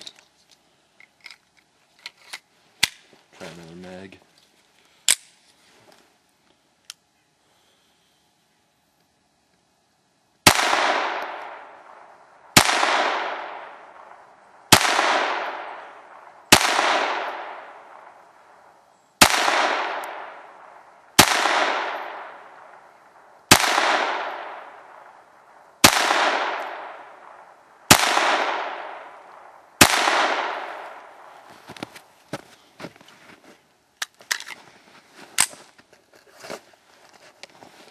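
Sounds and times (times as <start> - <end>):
pistol shots with echo: 10.4 - 18.6, 19.2 - 31.3.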